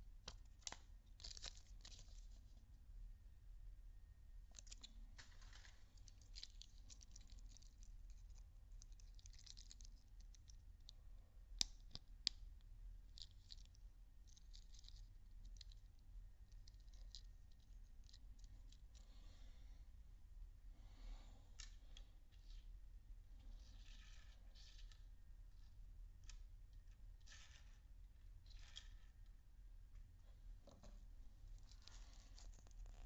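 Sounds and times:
plastic toys rustling and ticking: 4.5s - 10.9s, 13.0s - 19.1s.

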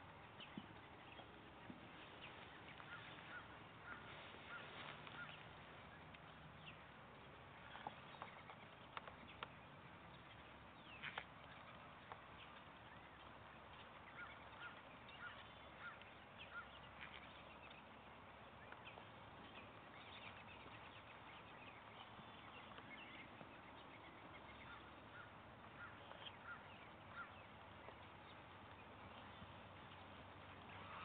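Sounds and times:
distant bird calls: 0.0s - 31.0s.

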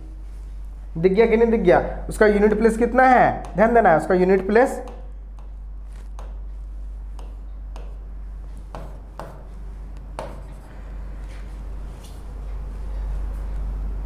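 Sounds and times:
steady low hum: 0.0s - 14.0s
pen tapping on touchscreen: 6.2s - 6.4s, 7.1s - 8.0s, 10.2s - 10.6s.

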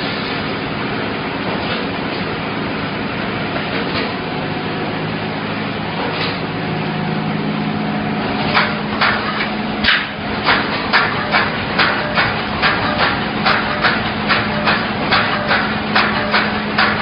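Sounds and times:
welding machine rumble and hum: 0.0s - 17.0s
sharp mechanical clacks: 8.4s - 17.0s.

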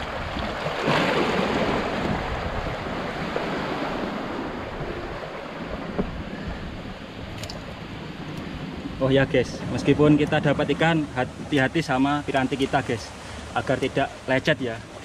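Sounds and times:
sea water sloshing among rocks: 0.0s - 8.8s
wind on microphone: 0.0s - 11.5s.

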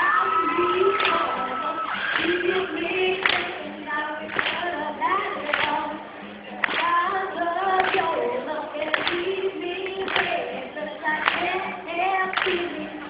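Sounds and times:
music: 0.0s - 13.0s
woman singing: 0.0s - 13.0s
sharp clap on the beat: 0.9s - 2.4s, 3.1s - 3.6s, 4.2s - 4.7s, 5.4s - 7.0s, 7.7s - 8.2s, 8.8s - 10.6s, 11.2s - 11.7s, 12.3s - 13.0s.

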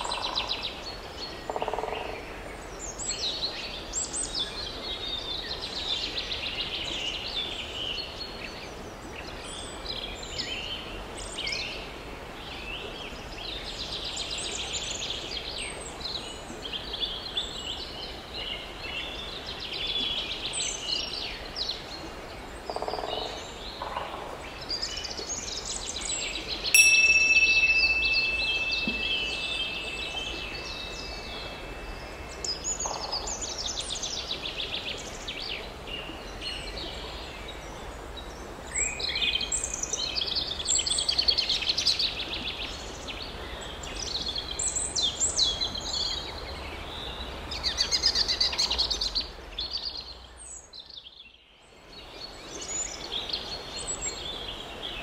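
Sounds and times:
birds singing: 22.6s - 37.7s
chime ringing: 26.8s - 32.0s.

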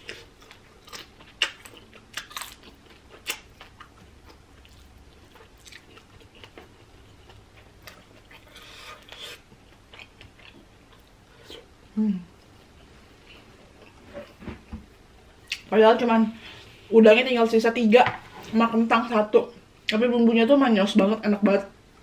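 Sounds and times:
person chewing crunchy food: 0.0s - 11.7s.

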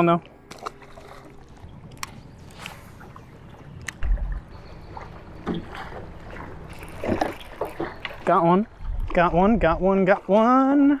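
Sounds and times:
wind: 0.0s - 11.0s
water slapping hull: 0.2s - 11.0s
low thump: 4.0s - 4.6s.

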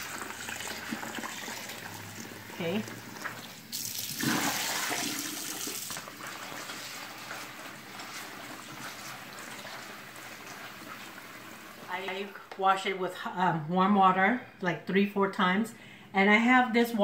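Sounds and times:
tap water running into bowl: 0.0s - 11.9s.

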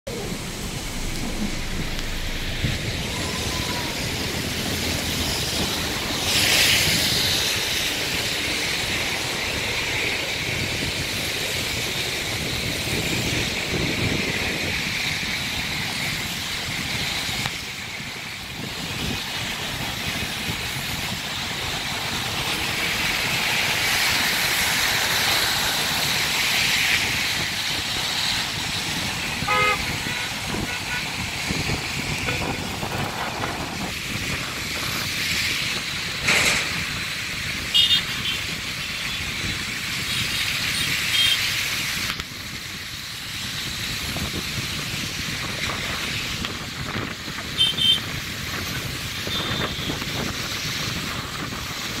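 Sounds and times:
heavy rain: 0.0s - 52.0s
tyres on wet road: 0.0s - 52.0s.

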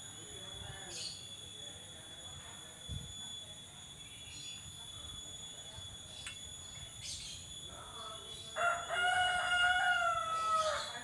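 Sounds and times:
rooster crowing: 8.6s - 11.0s.

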